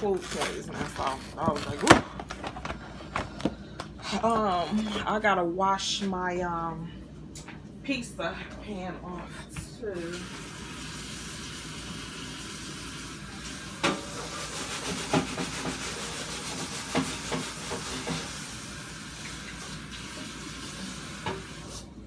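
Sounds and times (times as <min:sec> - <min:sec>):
kitchen tap running: 0:09.5 - 0:22.0.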